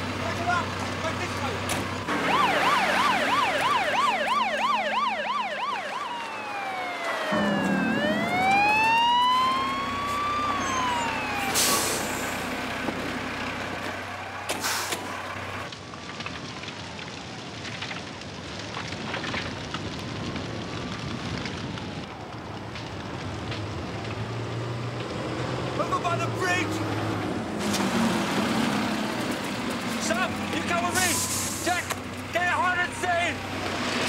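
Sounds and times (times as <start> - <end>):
fire engine siren wailing: 0.0 - 34.0
engine running: 5.9 - 15.7.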